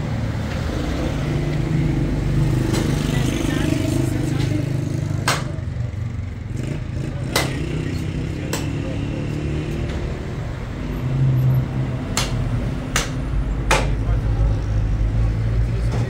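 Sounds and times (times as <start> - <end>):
cleaver chopping meat: 7.3 - 7.6.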